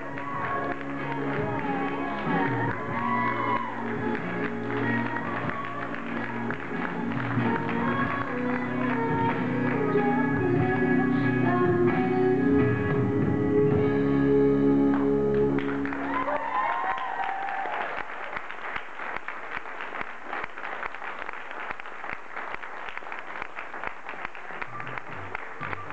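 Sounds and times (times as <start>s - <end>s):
audience applauding: 0.0s - 10.0s, 14.9s - 25.9s
music playing: 0.0s - 16.4s, 24.3s - 25.9s.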